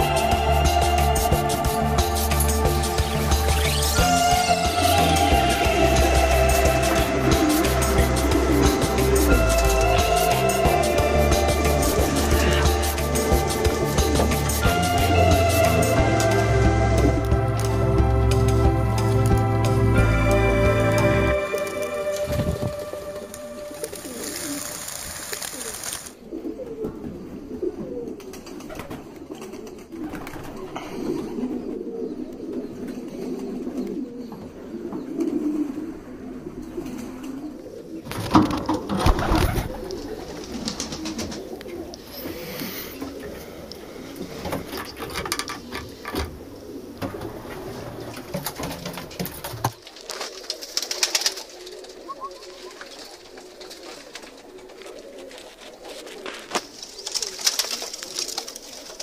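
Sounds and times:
pigeons cooing: 0.0 - 59.0.

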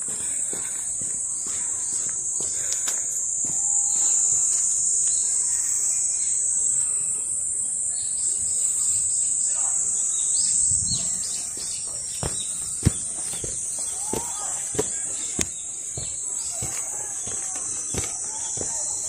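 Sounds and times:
insects droning: 0.0 - 19.0
bird chirps: 7.9 - 19.0.

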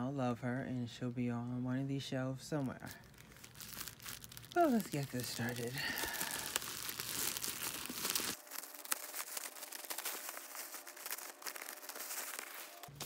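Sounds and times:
plastic film crinkling: 2.6 - 13.0.

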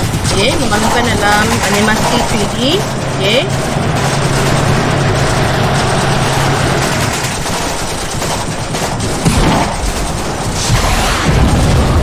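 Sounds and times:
low steady drone: 0.0 - 12.0
rapid gunfire: 0.0 - 12.0.

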